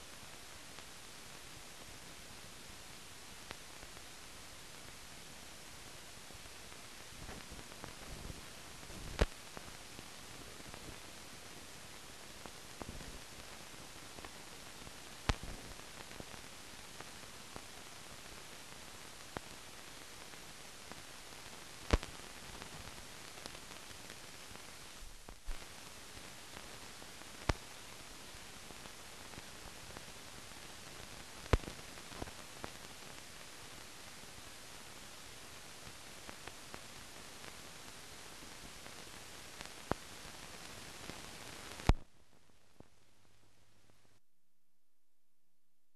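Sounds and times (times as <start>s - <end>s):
film soundtrack hiss: 0.0s - 44.2s
sharp pops and clicks: 9.0s - 9.4s, 15.3s - 15.6s, 31.5s - 32.4s, 41.8s - 42.1s.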